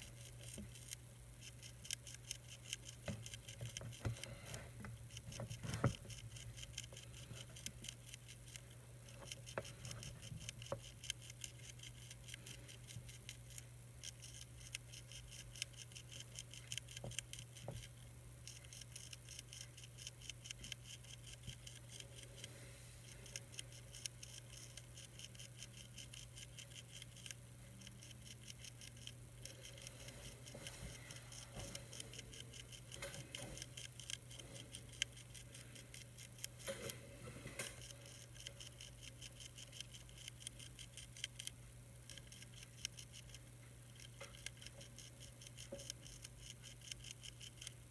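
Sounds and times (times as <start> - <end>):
caterpillar chewing clicks: 0.0 - 37.0, 37.6 - 47.9
steady low hum: 0.0 - 47.9.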